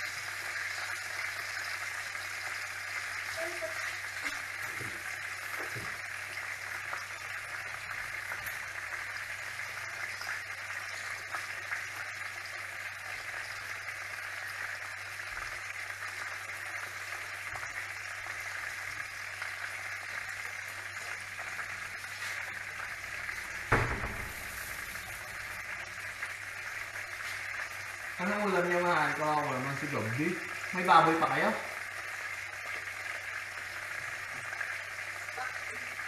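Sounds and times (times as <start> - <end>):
chicken sizzling in oil: 0.0 - 36.0
sharp knock: 23.7 - 24.5.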